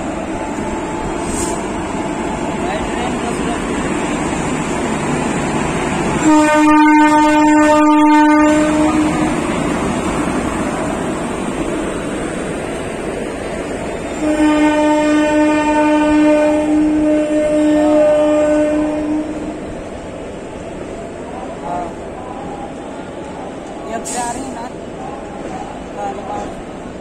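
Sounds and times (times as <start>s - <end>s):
train rolling rumble: 0.0s - 27.0s
locomotive air horn blasts: 6.2s - 9.3s, 14.2s - 19.6s.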